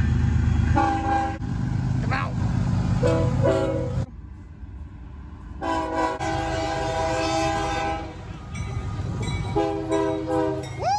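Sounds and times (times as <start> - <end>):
low rumble of passing train: 0.0 - 10.9
locomotive air horn blasts: 0.8 - 1.4, 3.0 - 4.1, 5.6 - 8.2, 9.5 - 10.7.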